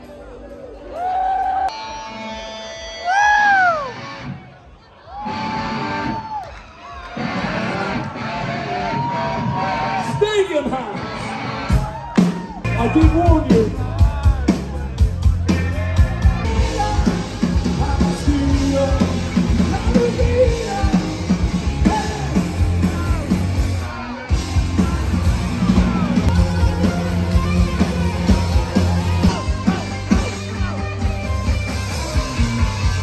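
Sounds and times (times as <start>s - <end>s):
live band playing loudly: 0.0s - 6.3s, 7.1s - 33.0s
person singing: 15.5s - 32.9s.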